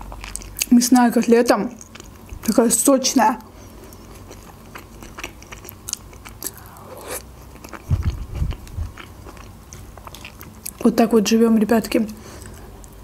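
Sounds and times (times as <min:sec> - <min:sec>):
chewing soft food: 0:00.0 - 0:02.6, 0:03.4 - 0:10.8
wet mouth clicks: 0:06.3 - 0:08.6.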